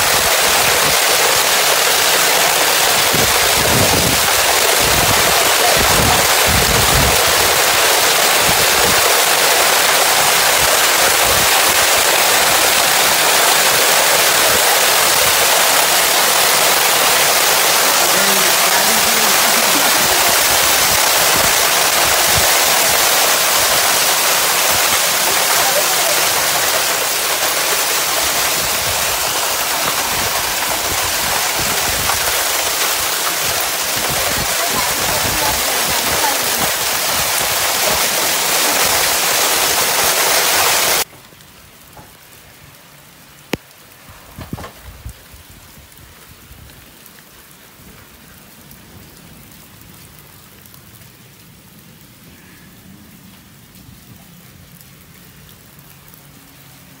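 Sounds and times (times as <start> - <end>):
hail and rain pelting down: 0.0 - 57.0.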